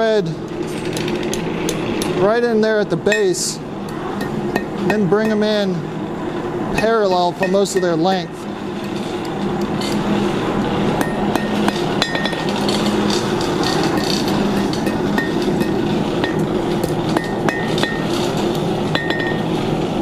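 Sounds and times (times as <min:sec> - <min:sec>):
steady low hum: 0:00.0 - 0:20.0
hammer tapping metal on anvil: 0:06.8 - 0:08.1, 0:11.0 - 0:12.5, 0:17.2 - 0:18.1, 0:18.9 - 0:19.5.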